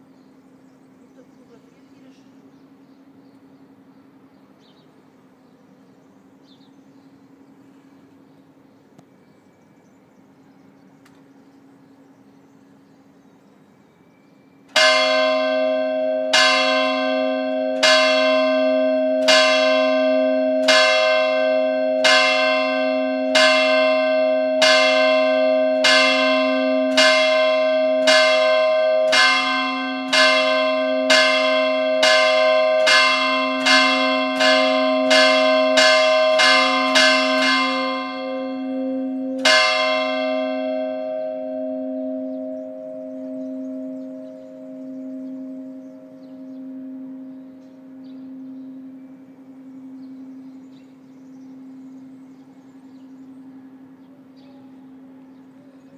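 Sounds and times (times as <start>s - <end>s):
church bell tolling: 14.6s - 55.9s.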